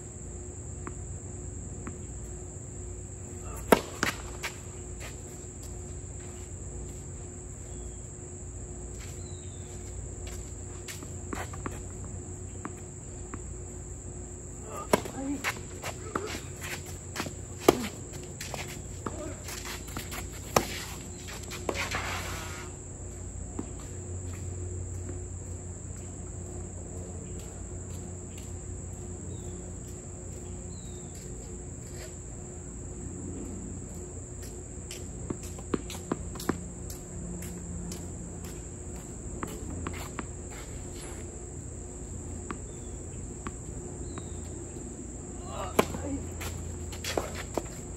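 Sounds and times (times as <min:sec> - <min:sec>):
insects droning: 0:00.0 - 0:47.9
tennis racket hitting ball: 0:03.4 - 0:04.6, 0:14.7 - 0:22.5, 0:45.5 - 0:47.9.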